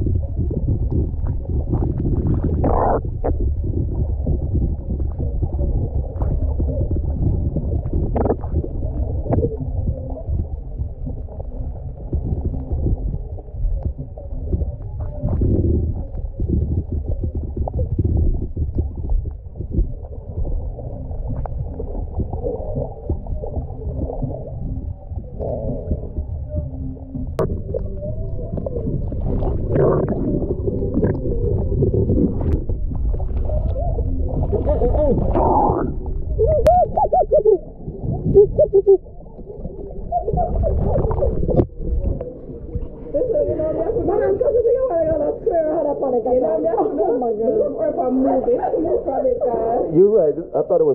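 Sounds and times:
underwater rumble of water: 0.0 - 50.9
short warbling tones: 2.6 - 3.4, 27.4 - 32.7, 33.8 - 41.5
sharp clicks and crackles: 12.0 - 26.4.

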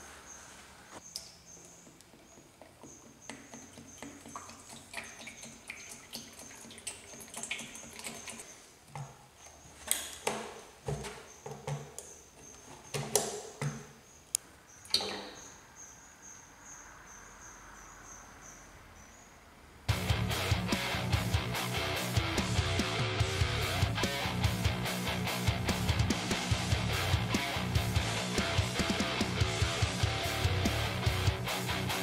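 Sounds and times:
oil pouring from a spigot: 3.3 - 8.5
bucket clicks and knocks: 9.9 - 14.0.

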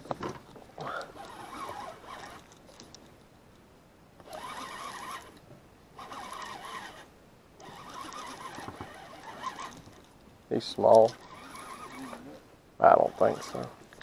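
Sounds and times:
fishing reel gears whirring: 0.8 - 2.6, 4.2 - 5.4, 6.0 - 10.1, 10.9 - 13.8.

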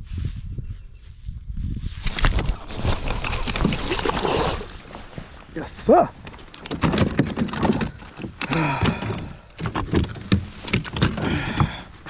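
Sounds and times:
knocks and thuds on kayak hull: 6.2 - 12.0.

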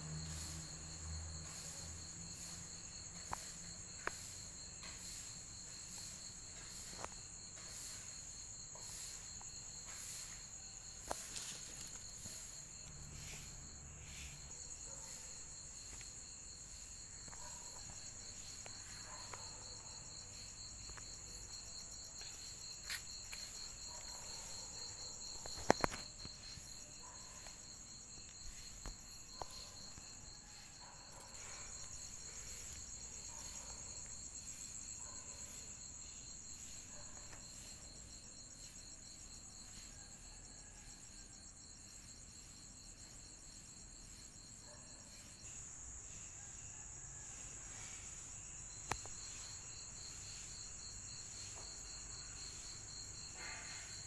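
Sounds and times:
insects trilling: 0.0 - 54.0.

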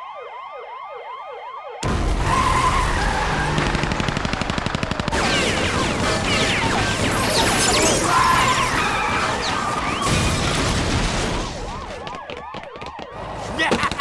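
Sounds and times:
gunfire: 1.8 - 7.8.

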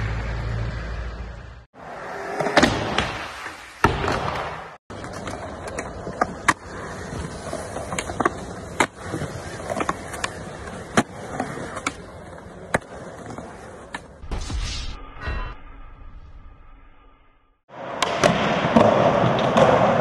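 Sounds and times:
skateboard wheels rolling on concrete: 0.0 - 14.2.

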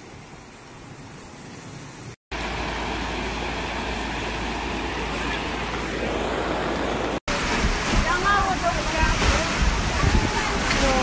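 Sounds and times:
floodwater roaring: 2.3 - 11.0.

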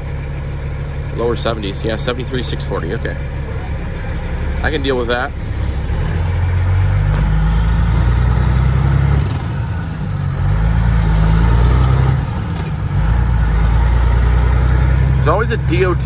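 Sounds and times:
truck diesel engine accelerating: 0.0 - 16.0.

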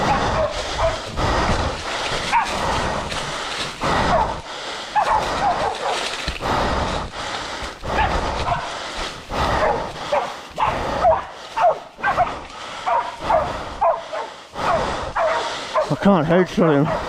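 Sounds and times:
dogs barking and yelping: 0.0 - 6.3, 7.8 - 17.0
leaves crunching underfoot: 5.0 - 6.4.

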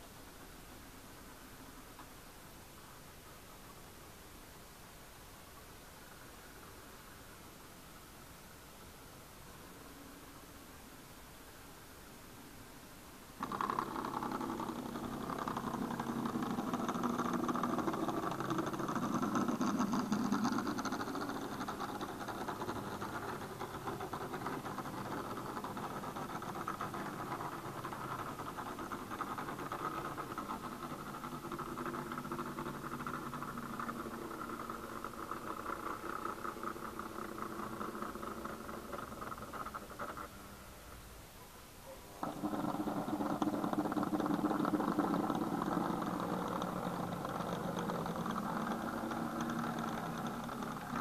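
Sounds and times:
wheels on rails: 0.0 - 51.0
electric motor hum: 13.4 - 40.9, 42.2 - 51.0.

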